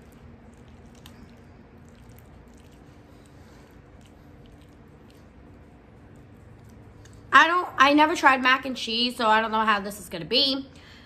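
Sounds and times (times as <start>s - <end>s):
fork stirring mac and cheese: 0.0s - 7.4s.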